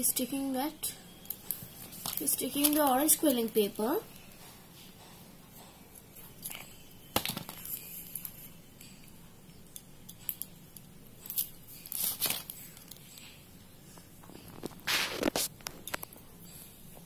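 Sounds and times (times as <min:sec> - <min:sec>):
paper rustling: 0:14.5 - 0:15.9.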